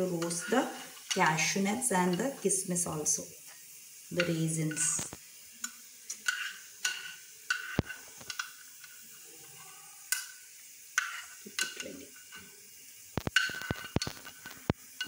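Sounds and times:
metal spoon scraping frying pan: 0:00.0 - 0:02.4, 0:04.2 - 0:10.4, 0:11.0 - 0:12.5, 0:13.2 - 0:15.0.

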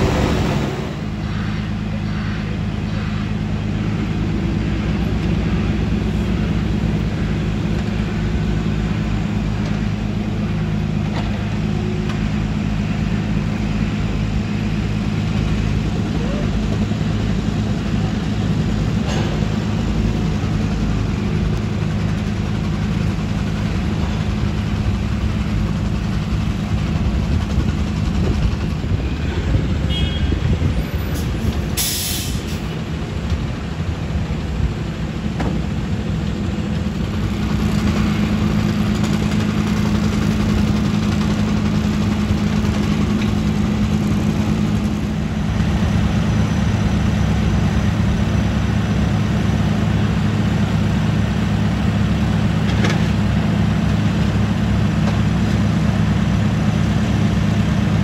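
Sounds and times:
diesel engines droning: 0:00.0 - 0:58.0
air hiss: 0:31.8 - 0:32.7.

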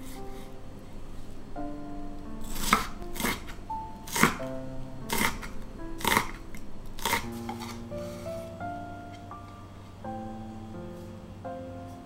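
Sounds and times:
soft background music: 0:00.0 - 0:12.0
knife cutting onto wooden board: 0:02.5 - 0:03.5.

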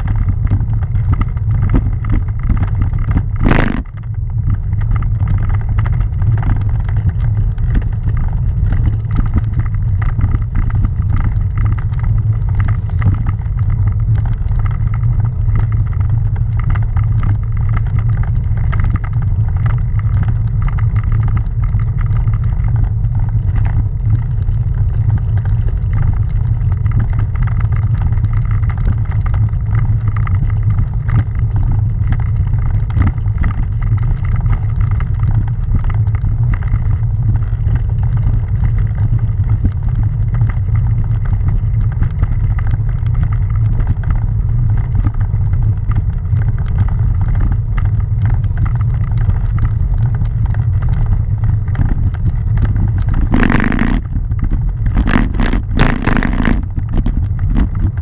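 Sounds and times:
bicycle tyres on cobblestones: 0:00.0 - 0:58.0.

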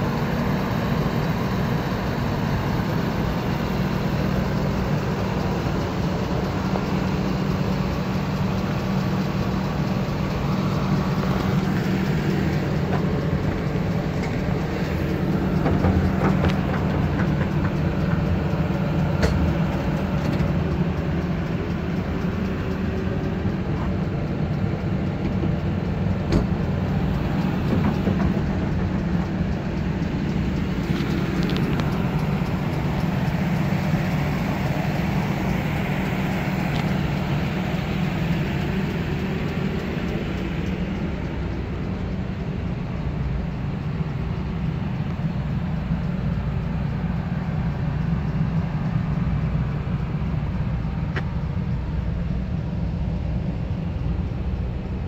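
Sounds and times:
engine idling: 0:00.0 - 0:55.0.

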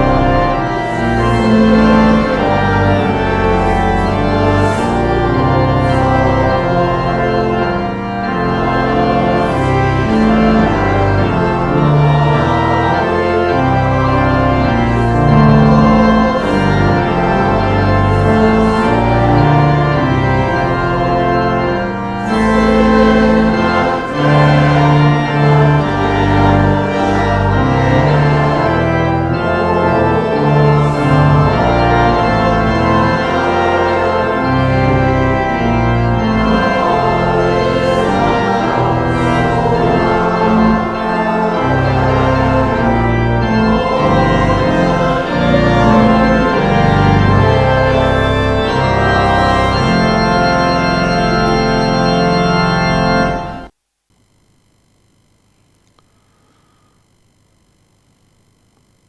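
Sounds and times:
church organ chords: 0:00.0 - 0:53.8.

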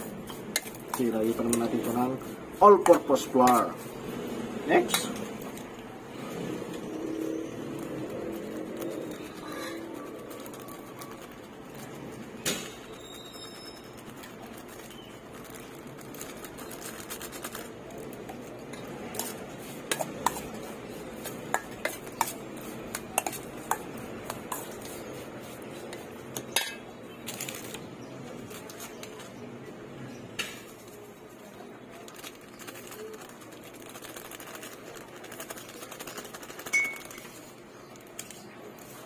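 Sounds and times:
spoon clinking in metal bowl: 0:26.4 - 0:26.9, 0:36.6 - 0:37.3.

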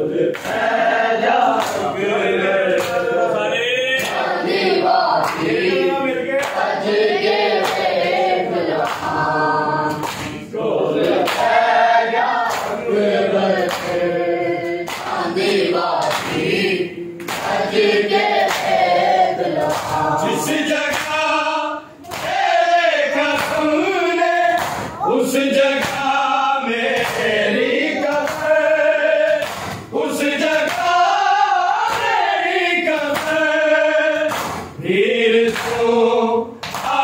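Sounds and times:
men chanting a lament: 0:00.0 - 0:37.0
hands slapping bare chests: 0:24.6 - 0:25.0.

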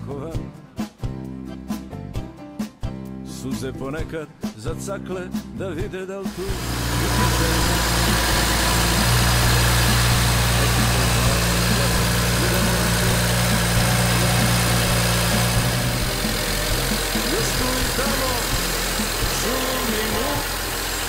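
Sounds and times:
car engine idling: 0:06.3 - 0:21.0.

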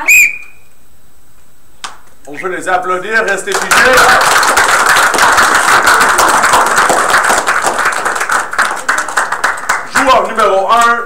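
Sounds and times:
audience applauding: 0:03.3 - 0:10.6.

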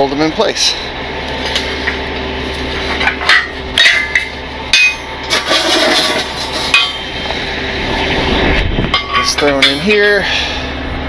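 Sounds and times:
engine hum: 0:00.0 - 0:11.0
steel scoops clanking on metal frame: 0:02.8 - 0:07.4, 0:08.8 - 0:10.6.

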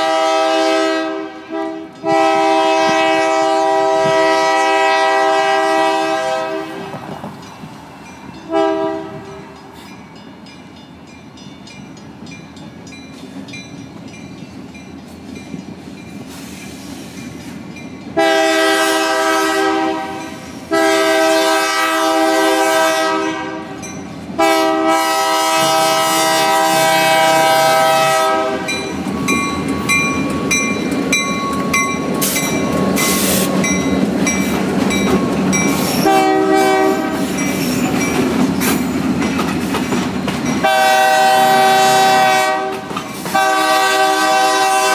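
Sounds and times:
locomotive air horn blasts: 0:00.0 - 0:07.0, 0:08.5 - 0:09.5, 0:18.2 - 0:28.8, 0:36.0 - 0:37.4, 0:40.6 - 0:44.9
train engines and wheels rumbling: 0:00.0 - 0:44.9.

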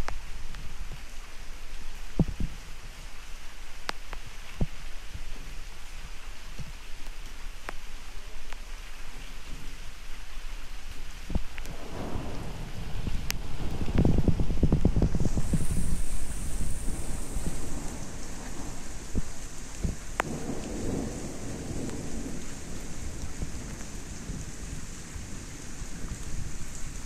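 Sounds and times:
raindrops landing close by: 0:00.0 - 0:27.0
steady rain: 0:00.0 - 0:27.0
low thunder rumble: 0:11.6 - 0:27.0.

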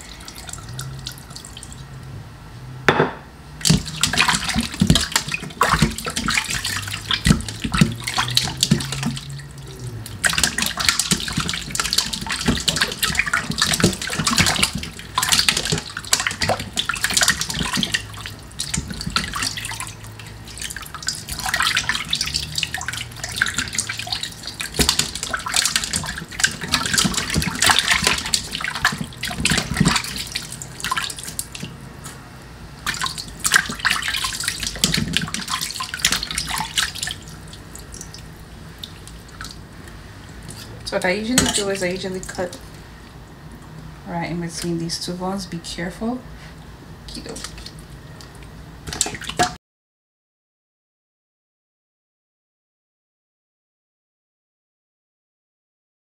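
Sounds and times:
water splashing in a metal bowl: 0:03.6 - 0:31.8, 0:32.8 - 0:42.8, 0:47.1 - 0:49.6.

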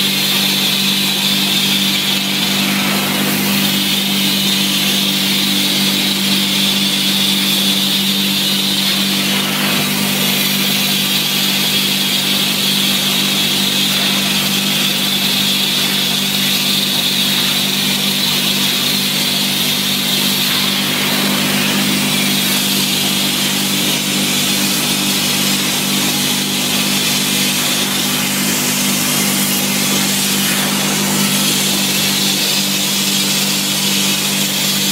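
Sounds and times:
suction motor humming and whining: 0:00.0 - 0:34.9.

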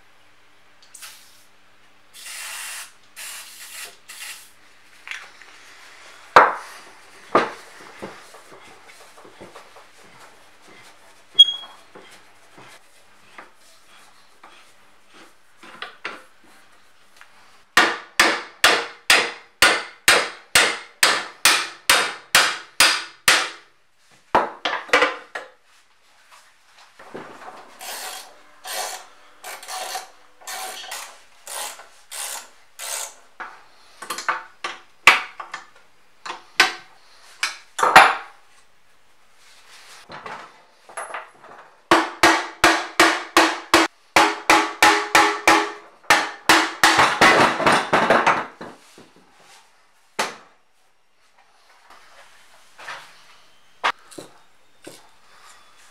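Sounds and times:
hammer striking metal: 0:17.8 - 0:23.6, 0:41.9 - 0:47.4.

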